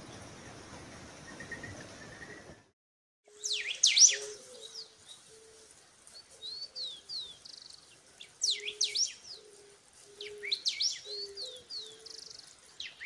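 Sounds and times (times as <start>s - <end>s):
birds chirping: 3.3s - 13.0s
bird whistles: 3.4s - 4.4s.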